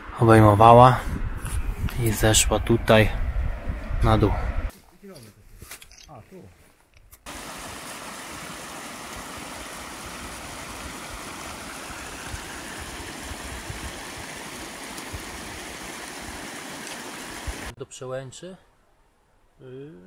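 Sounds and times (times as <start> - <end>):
mountain stream rushing: 7.3 - 17.8.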